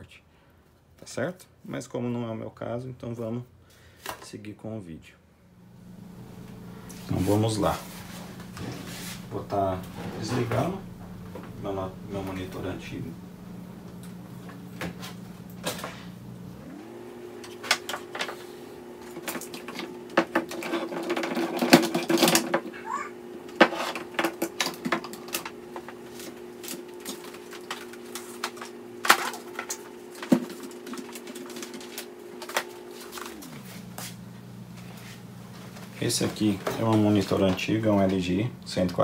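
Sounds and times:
cables unplugging clicks and knocks: 0:23.5 - 0:33.3.

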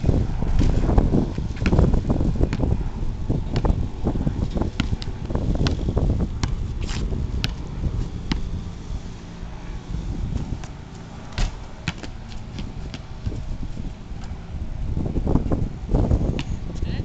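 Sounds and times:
wind rumble on microphone: 0:00.0 - 0:17.0
basketball bouncing on concrete: 0:00.5 - 0:08.6, 0:10.2 - 0:13.5, 0:16.0 - 0:16.6.

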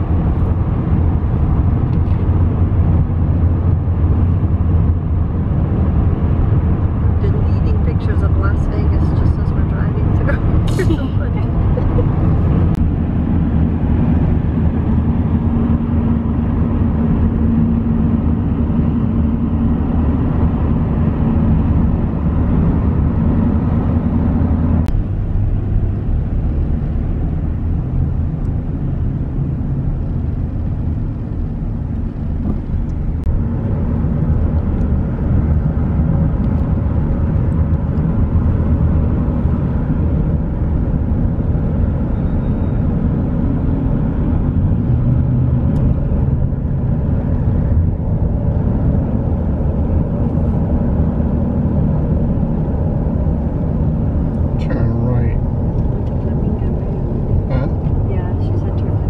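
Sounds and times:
car road noise from inside: 0:00.0 - 0:59.0.

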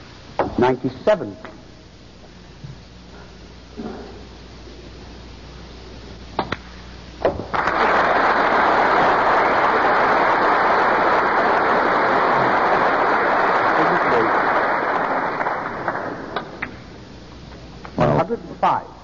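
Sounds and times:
audience applause: 0:07.4 - 0:16.6.

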